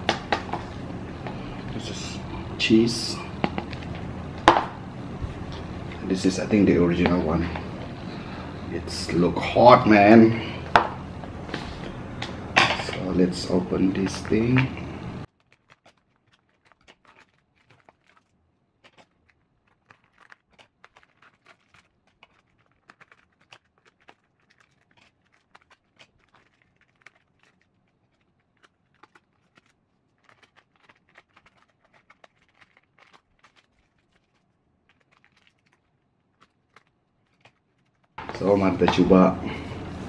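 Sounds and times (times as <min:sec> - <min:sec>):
plastic packaging crinkling and tearing: 0:12.9 - 0:39.3.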